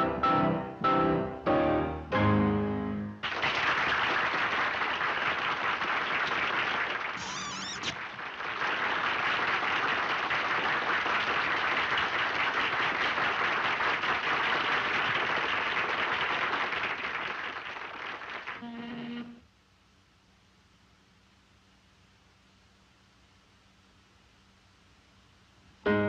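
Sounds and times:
audience applauding: 3.2s - 18.8s.

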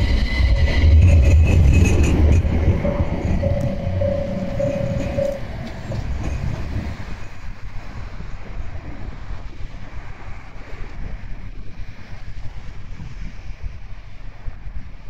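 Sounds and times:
steady whine: 0.0s - 8.0s
tram rumbling on street track: 0.0s - 10.2s.

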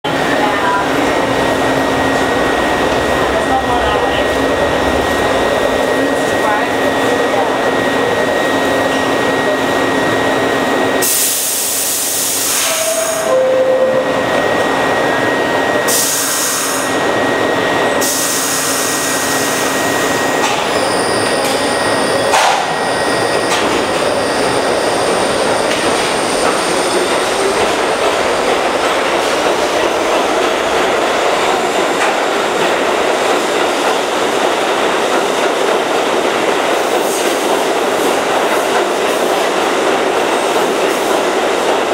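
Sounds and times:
train motors whining: 0.1s - 35.0s
air brakes hissing: 15.9s - 17.0s, 18.0s - 20.2s.

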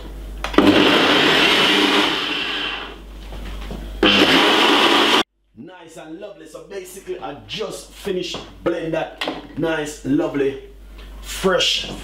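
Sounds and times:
blender motor running: 0.5s - 3.0s, 4.0s - 5.2s.

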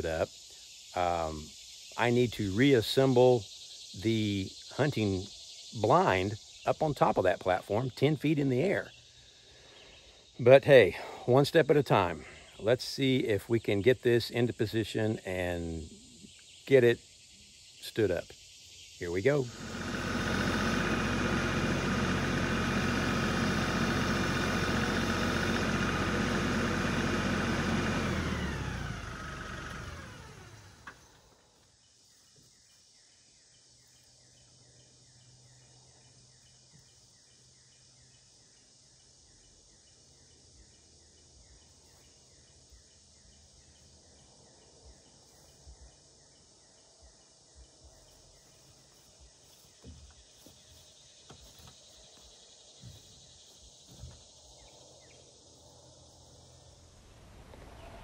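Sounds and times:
faint insects chirping: 0.0s - 58.0s
tractor diesel engine running: 19.3s - 31.0s.

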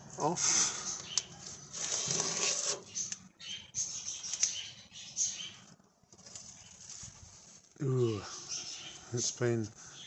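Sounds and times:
tape peeling off metal: 1.7s - 3.2s.

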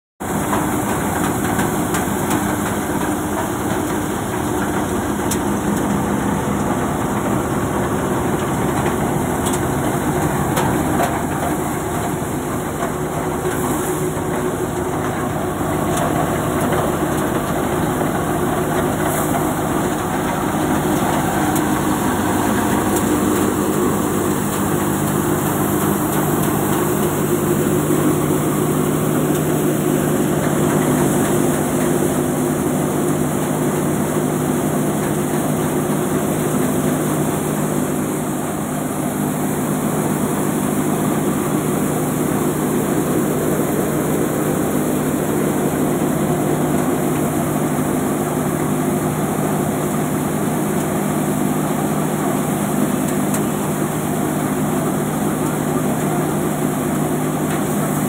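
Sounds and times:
threshing machine hum: 0.2s - 58.0s
tractor diesel engine: 0.2s - 58.0s.

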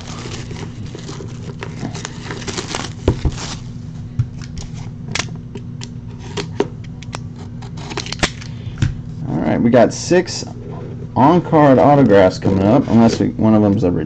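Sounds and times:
shrink wrap crinkling: 0.0s - 3.8s
cardboard box knocks: 3.0s - 3.4s.

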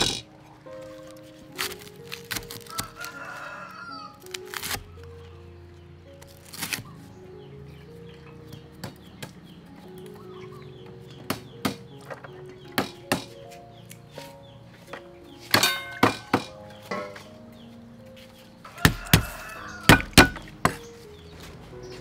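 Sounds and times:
cleaver chopping on wooden board: 11.2s - 12.0s, 12.7s - 13.4s, 15.5s - 17.2s, 18.8s - 20.8s
ringing metal clang: 15.5s - 17.3s.

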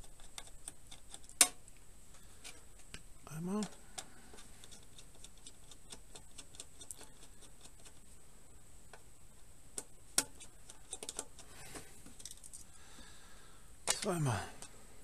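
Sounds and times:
hands clicking hardware: 9.7s - 11.5s.

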